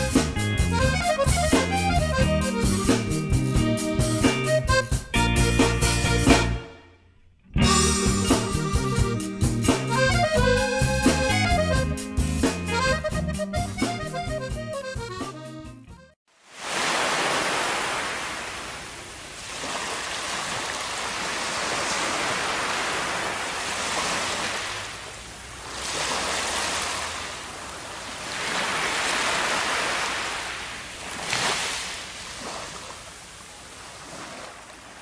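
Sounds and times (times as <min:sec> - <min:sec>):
small waves on sandy beach: 0:16.3 - 0:35.0.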